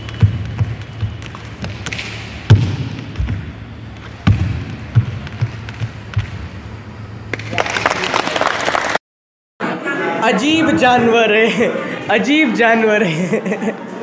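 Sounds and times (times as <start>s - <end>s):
low hum: 0.0s - 7.9s.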